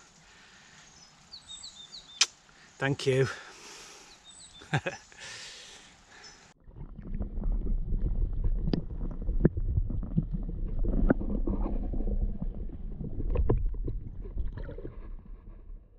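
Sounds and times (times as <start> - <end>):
muffled underwater river rumble: 6.6 - 15.9.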